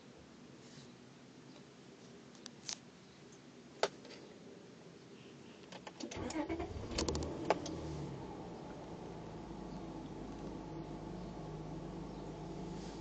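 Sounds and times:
car engine starting and running: 6.0 - 13.0.

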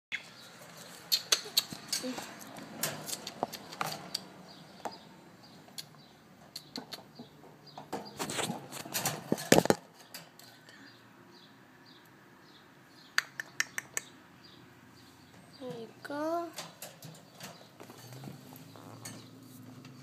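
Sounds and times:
birds moving about a wire cage: 0.3 - 5.1, 6.4 - 10.9, 15.0 - 20.0.

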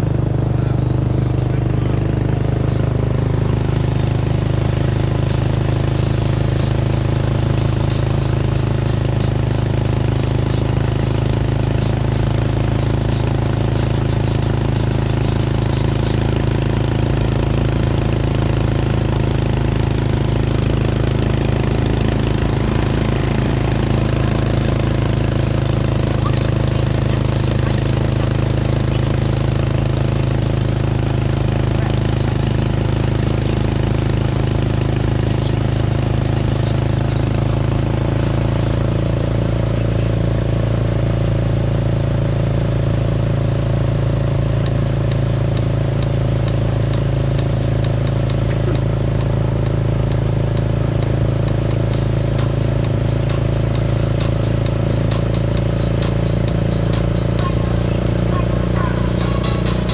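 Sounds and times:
train engine droning: 0.0 - 59.9.

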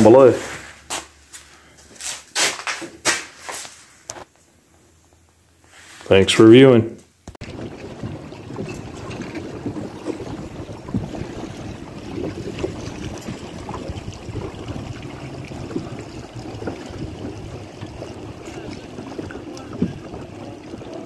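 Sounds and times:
water splashing: 7.4 - 21.0
wind buffeting microphone: 7.4 - 21.0.

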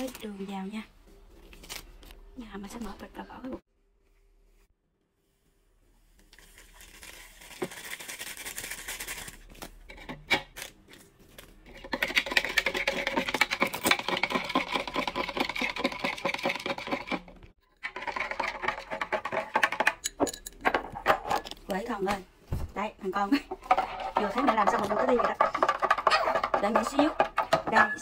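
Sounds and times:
metal spoon stirring in jug: 11.7 - 21.6, 23.5 - 28.0.

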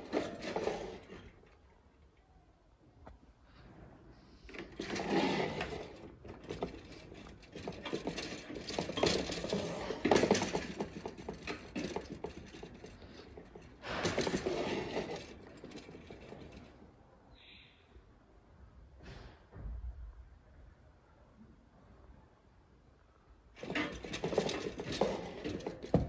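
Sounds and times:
heater wire guard rattling: 4.5 - 16.7, 23.6 - 26.0.

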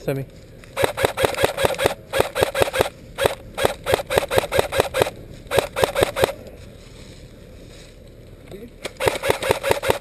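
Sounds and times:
airsoft rifle firing single shots: 0.8 - 6.4, 8.9 - 10.0.

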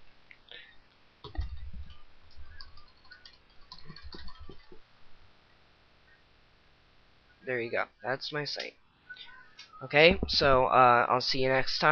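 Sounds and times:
typing on computer keyboard: 1.2 - 4.8.

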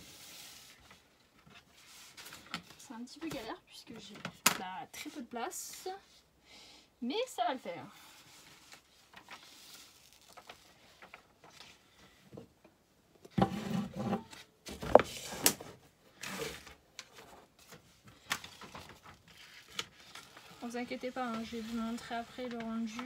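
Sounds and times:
paper and plastic rustling: 0.0 - 5.8, 8.1 - 12.0, 14.7 - 23.0
plastic wrapping crinkling: 8.5 - 11.6.

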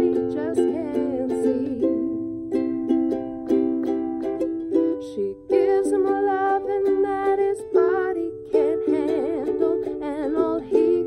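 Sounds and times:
woman singing with vibrato: 0.0 - 2.4, 4.7 - 11.0
ukulele strumming chords: 0.0 - 11.0.

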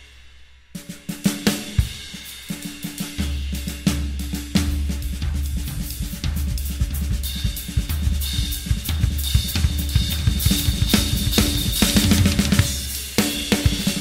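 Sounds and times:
drum kit beat: 0.8 - 14.0
bass line: 3.8 - 13.0.

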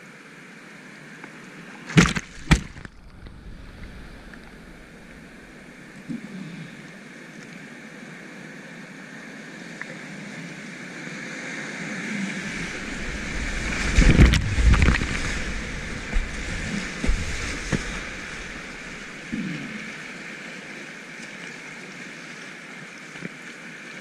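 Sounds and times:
kayak splashing through waves: 1.8 - 6.0, 10.9 - 23.0
whitewater rushing: 1.9 - 6.4, 10.5 - 21.8.

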